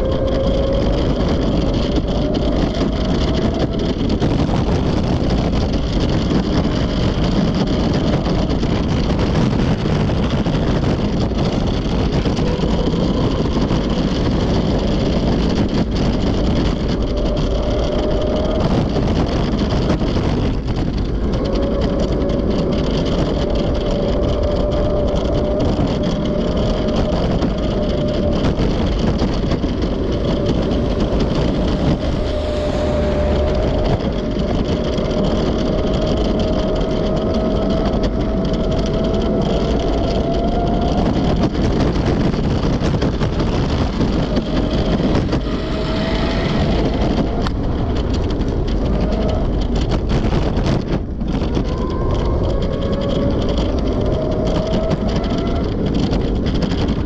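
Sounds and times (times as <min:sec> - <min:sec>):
road traffic: 0:00.0 - 0:57.0
wind on microphone: 0:00.0 - 0:57.0
low rushing street noise: 0:23.9 - 0:41.6, 0:42.4 - 0:49.9.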